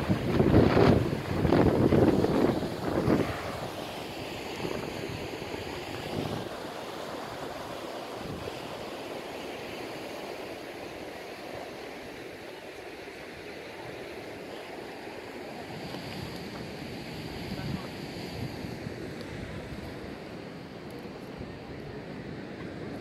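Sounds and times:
wind buffeting microphone: 0.0s - 6.6s, 7.4s - 8.7s
surf washing against rocks: 0.0s - 23.0s.

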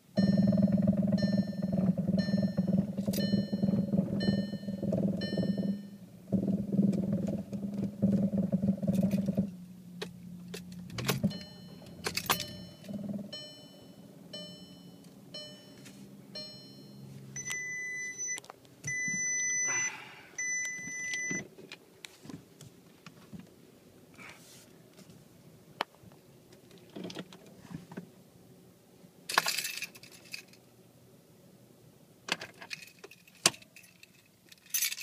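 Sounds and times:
low buzzing hum with rattling: 0.0s - 24.2s
longer warning tones: 0.1s - 21.4s
short warning beeps: 0.2s - 6.0s, 11.2s - 21.4s.

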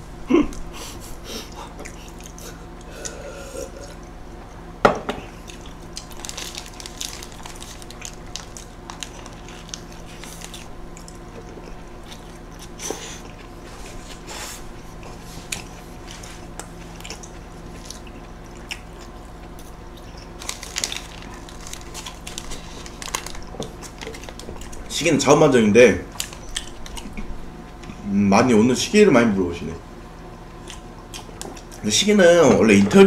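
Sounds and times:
faint steady hum: 0.0s - 33.0s
chewing and biting: 5.4s - 14.3s, 14.9s - 24.9s, 30.5s - 31.8s.

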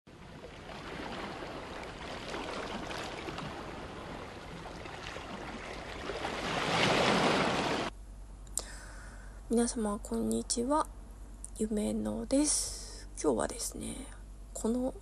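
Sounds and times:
waves washing up a beach: 0.1s - 7.9s.

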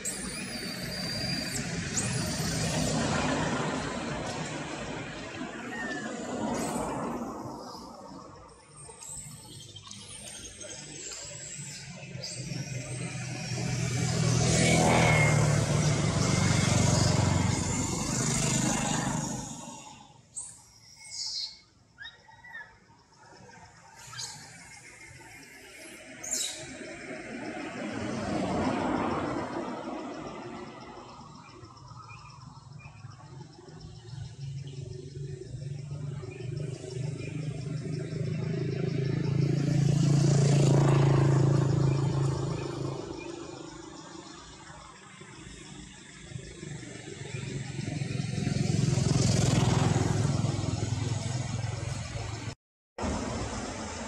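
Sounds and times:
vehicle engine passing: 1.2s - 7.9s, 12.4s - 20.1s, 26.7s - 54.0s.

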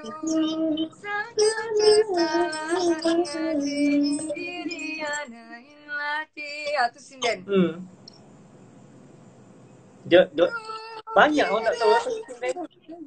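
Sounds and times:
woman singing unaccompanied: 0.0s - 7.5s, 10.4s - 13.0s.

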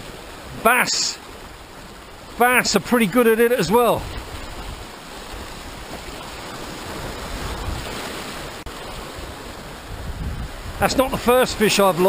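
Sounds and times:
sea waves washing over rocks: 0.0s - 12.0s
water rushing across rock: 0.0s - 12.0s
wind rumbling on microphone: 3.8s - 11.6s.

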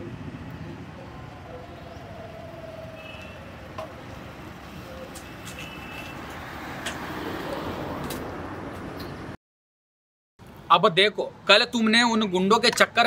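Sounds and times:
street traffic hum: 0.0s - 9.4s, 10.4s - 13.0s.

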